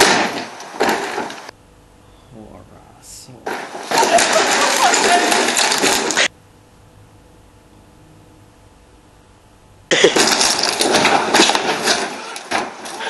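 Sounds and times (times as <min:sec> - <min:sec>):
knocks and clatter: 0:00.0 - 0:01.5, 0:03.4 - 0:06.3, 0:09.9 - 0:13.0
faint room hum: 0:00.0 - 0:13.0
loud rough noise: 0:03.3 - 0:13.0.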